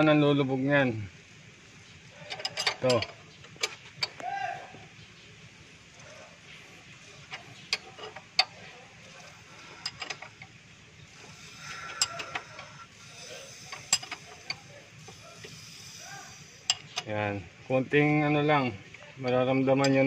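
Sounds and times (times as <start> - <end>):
metallic clicks of hand tools: 11.7 - 14.6, 15.4 - 17.1.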